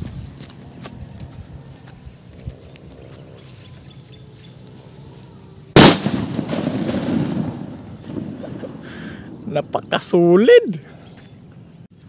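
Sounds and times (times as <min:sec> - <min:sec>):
firecracker bang: 0:05.8 - 0:09.5.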